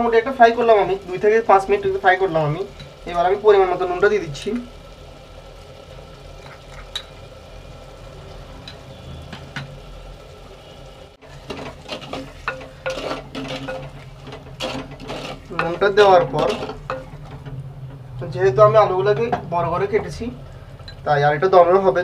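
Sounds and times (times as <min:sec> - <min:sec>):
masala frying in oil: 0:00.0 - 0:22.0
spoon scraping and stirring: 0:11.2 - 0:17.6.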